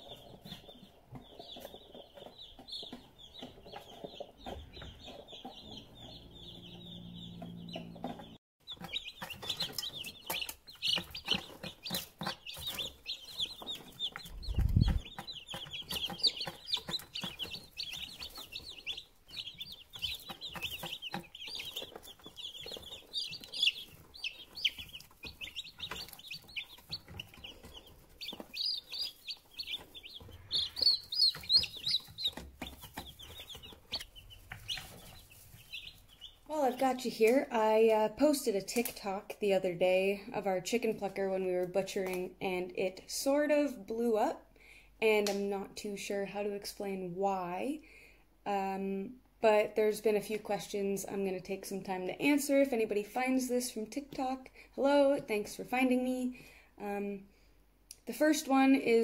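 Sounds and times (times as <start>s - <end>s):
chicks peeping: 0.0s - 42.6s.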